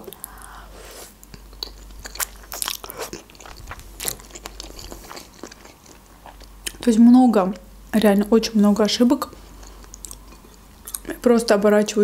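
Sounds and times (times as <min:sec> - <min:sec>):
person chewing noodles: 0:00.0 - 0:06.8, 0:09.4 - 0:11.1.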